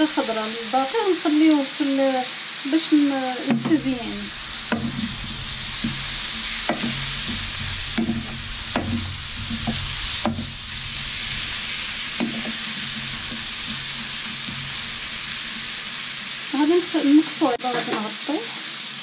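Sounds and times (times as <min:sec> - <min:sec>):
food sizzling in a frying pan: 0:00.0 - 0:19.0
wooden spoon scraping a pan: 0:03.4 - 0:18.1.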